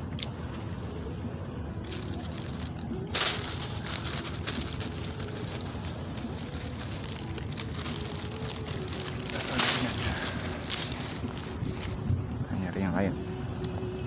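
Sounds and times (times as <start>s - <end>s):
plastic bag rustling: 1.8s - 12.0s.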